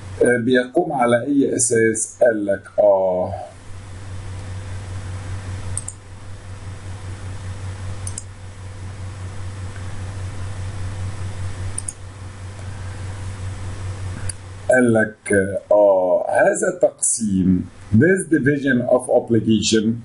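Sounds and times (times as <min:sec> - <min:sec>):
low hum and hiss: 0:00.0 - 0:20.0
faint short clicks: 0:05.7 - 0:06.0, 0:08.0 - 0:08.3, 0:11.7 - 0:12.0.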